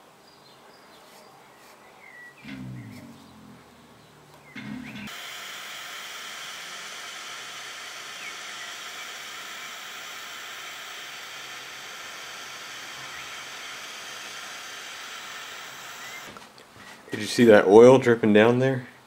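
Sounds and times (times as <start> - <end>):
torch lighter flame hissing: 4.6 - 16.4.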